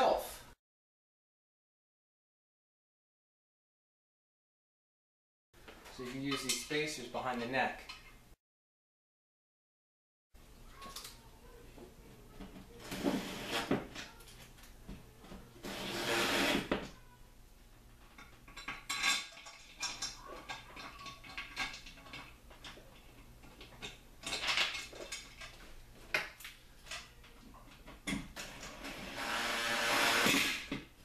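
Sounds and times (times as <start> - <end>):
metal clinks and clatter: 18.1 - 25.7.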